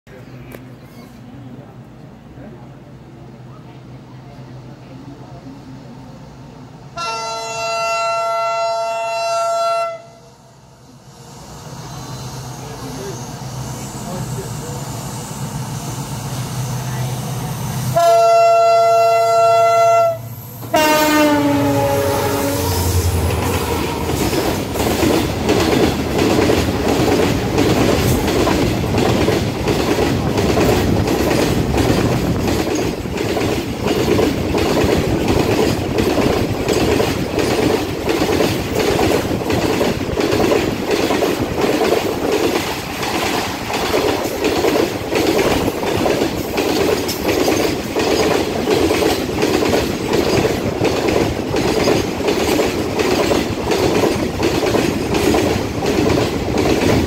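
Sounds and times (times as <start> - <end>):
train wheels clickety-clack: 22.8 - 57.0.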